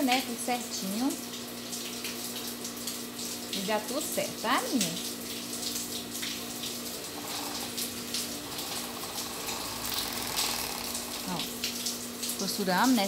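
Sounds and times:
sewing machine running: 0:07.0 - 0:11.5.

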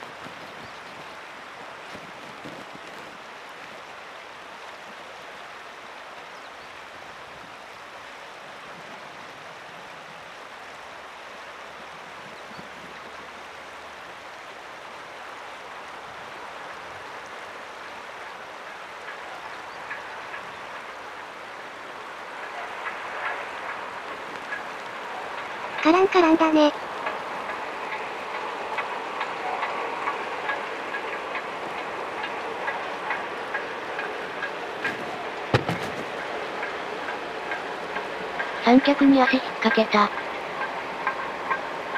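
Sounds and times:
steam locomotive running: 0:00.0 - 0:41.9
running gear clanking: 0:30.4 - 0:41.9.

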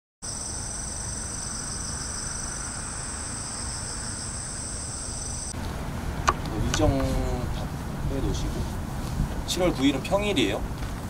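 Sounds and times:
high-pitched insect chorus: 0:00.2 - 0:05.6
low background rumble: 0:01.9 - 0:11.0.

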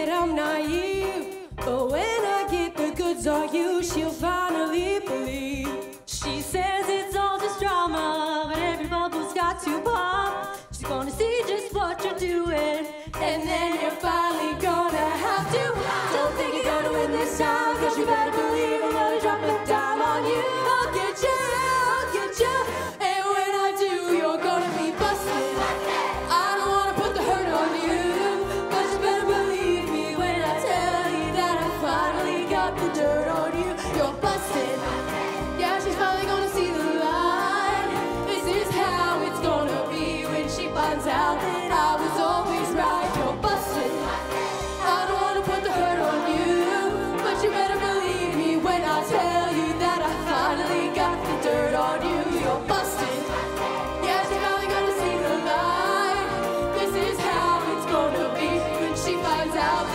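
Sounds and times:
ensemble singing a pop song: 0:00.0 - 0:59.9
accompaniment with steady beat: 0:24.5 - 0:48.4, 0:49.1 - 0:59.9.

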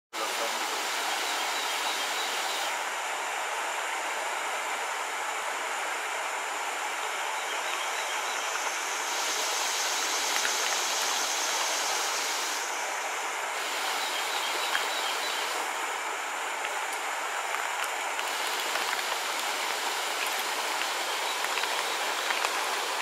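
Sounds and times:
water rushing over rocks: 0:00.2 - 0:03.1, 0:08.4 - 0:23.0.

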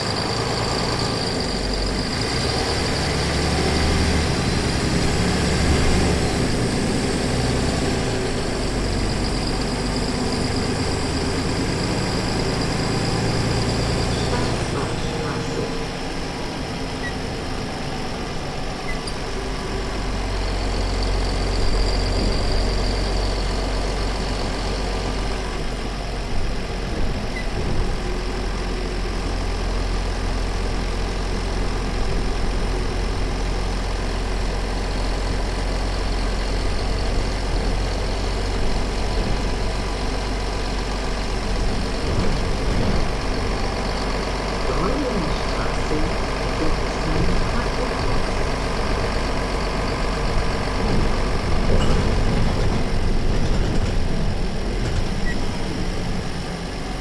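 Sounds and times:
bus engine droning: 0:00.0 - 0:57.0.

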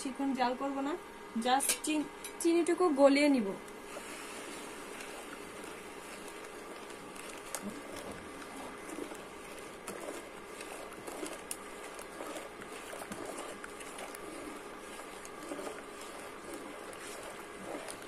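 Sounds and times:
spatula scraping metal pot: 0:03.9 - 0:18.0.

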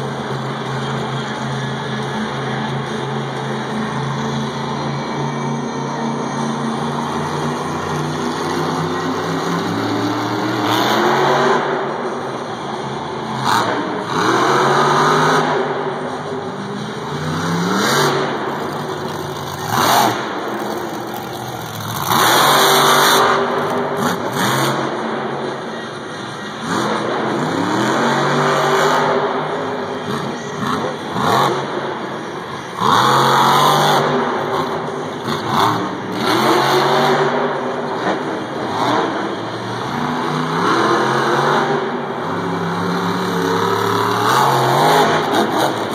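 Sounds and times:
truck engine revving hard: 0:04.1 - 0:25.6, 0:26.6 - 0:45.9.

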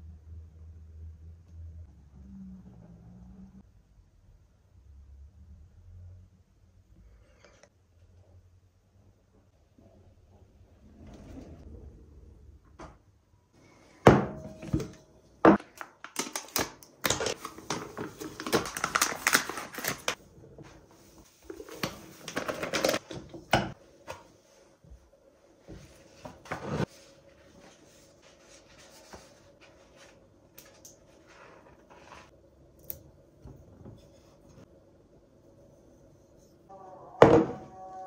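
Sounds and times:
packet rustling: 0:15.6 - 0:20.2.

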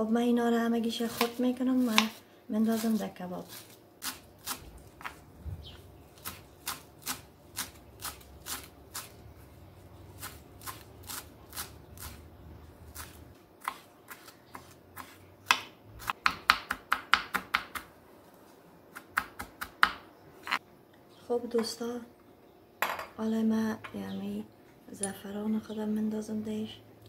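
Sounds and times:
knife chopping on wooden board: 0:13.0 - 0:17.9.

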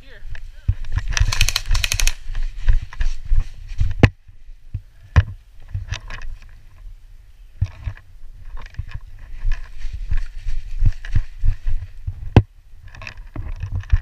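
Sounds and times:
running footsteps: 0:00.7 - 0:04.8, 0:08.5 - 0:12.4
sharp clicks: 0:01.0 - 0:02.2.

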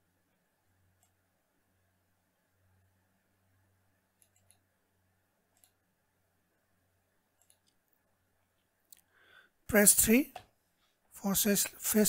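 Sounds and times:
computer mouse clicks: 0:01.0 - 0:01.2, 0:04.2 - 0:04.7, 0:05.5 - 0:05.8, 0:07.3 - 0:08.0.

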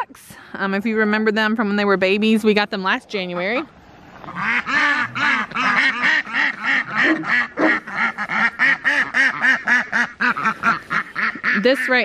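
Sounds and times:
ducks quacking: 0:04.2 - 0:12.0.

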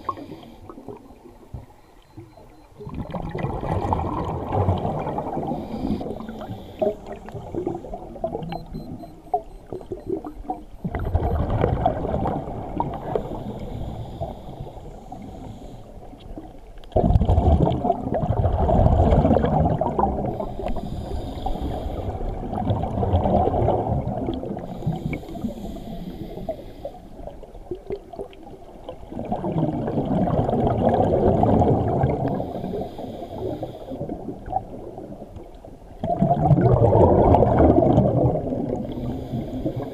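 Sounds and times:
bubbles gurgling underwater: 0:00.0 - 0:13.6, 0:16.3 - 0:20.8, 0:22.0 - 0:25.2, 0:27.2 - 0:39.9
hissing regulator inhalations: 0:05.5 - 0:08.0, 0:13.1 - 0:16.0, 0:20.3 - 0:22.3, 0:24.7 - 0:27.1.

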